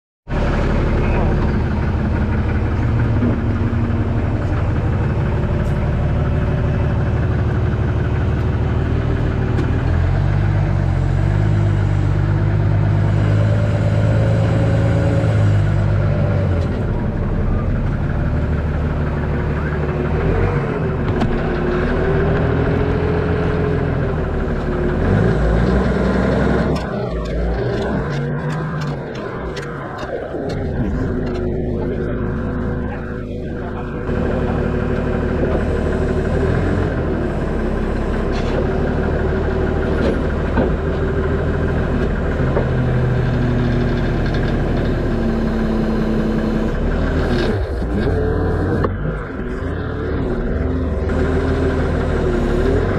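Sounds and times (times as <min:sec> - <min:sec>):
forklift engine revving: 0:00.3 - 0:52.9
high-pitched whine: 0:16.8 - 0:36.3.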